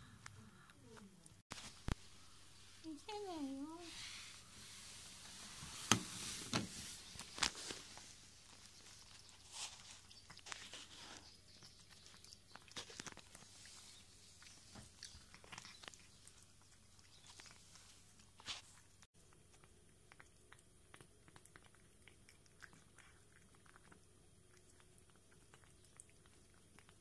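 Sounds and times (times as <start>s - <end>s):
cat crunching food: 7.2s - 27.0s.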